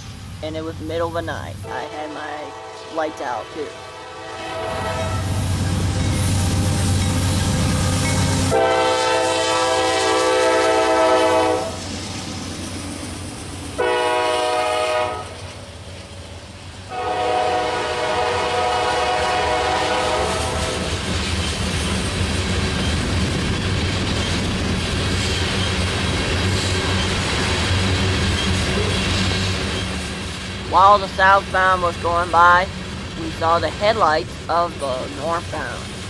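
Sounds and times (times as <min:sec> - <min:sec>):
locomotive horn blasts: 0:01.6 - 0:05.4, 0:08.5 - 0:11.8, 0:13.8 - 0:15.4, 0:16.9 - 0:20.9
freight cars rumbling and clattering: 0:20.8 - 0:36.0.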